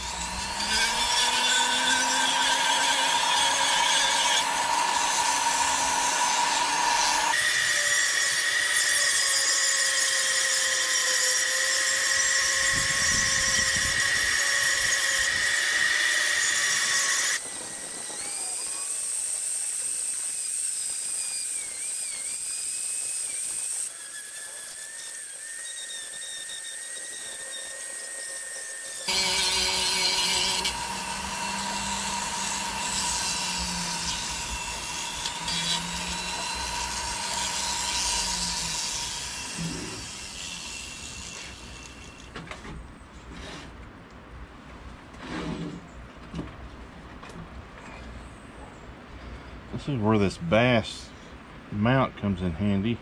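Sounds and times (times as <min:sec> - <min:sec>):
rotary tool motor whine: 0:04.0 - 0:42.4.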